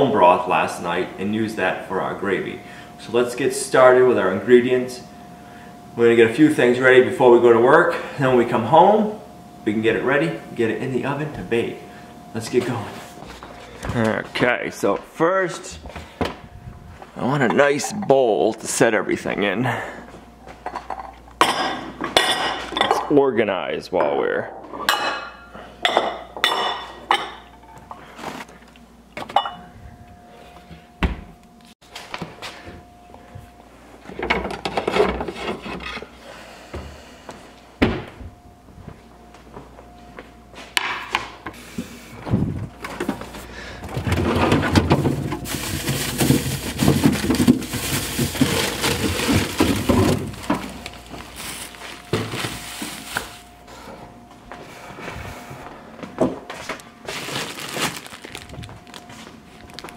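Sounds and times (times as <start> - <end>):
glass bowls clinking on stone: 24.0 - 27.7, 29.3 - 30.3
plastic bags crinkling: 44.0 - 53.6, 57.0 - 59.9.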